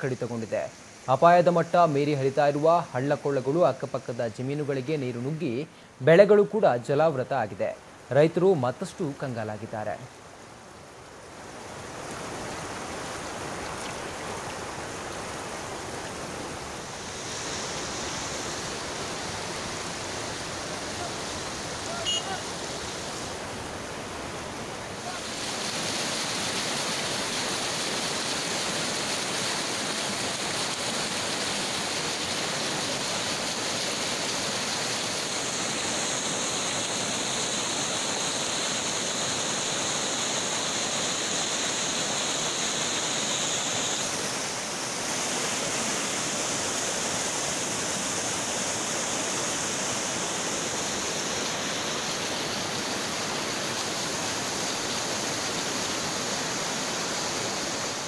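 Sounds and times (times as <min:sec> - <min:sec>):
floodwater rushing over bridge: 0:11.3 - 0:58.0.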